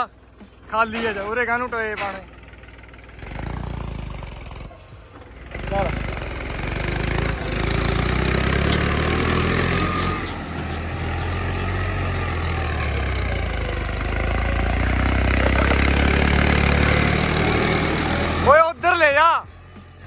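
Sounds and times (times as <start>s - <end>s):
tractor diesel engine running: 0.0s - 20.0s.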